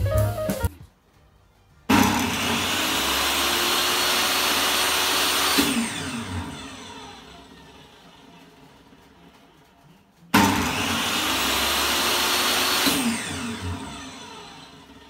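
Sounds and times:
table saw motor whining: 0:01.9 - 0:08.0, 0:10.4 - 0:15.0.

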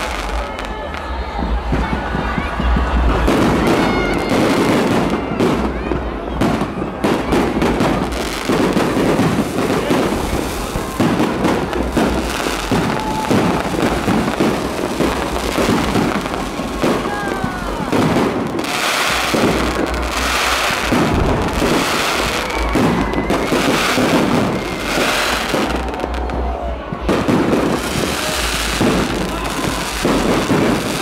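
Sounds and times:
firework whistles: 0:17.8 - 0:26.1.

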